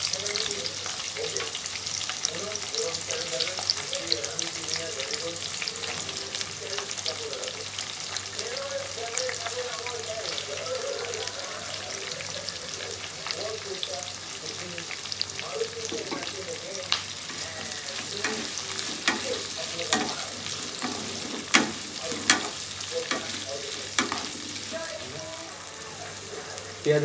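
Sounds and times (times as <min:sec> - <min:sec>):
onions sizzling in hot oil: 0:00.0 - 0:27.0
spatula knocking against pan: 0:18.2 - 0:20.2, 0:20.8 - 0:23.4.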